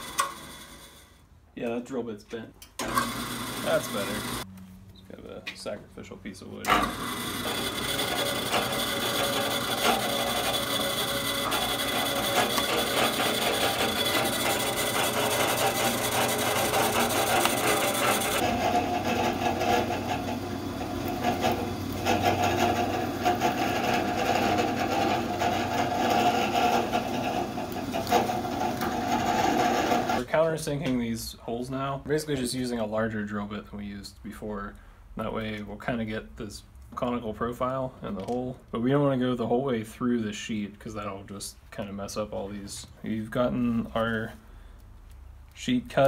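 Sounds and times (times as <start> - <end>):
drill bit cutting aluminum: 2.8 - 4.4, 6.7 - 30.2
drill press motor hum: 2.8 - 4.4, 6.7 - 30.2.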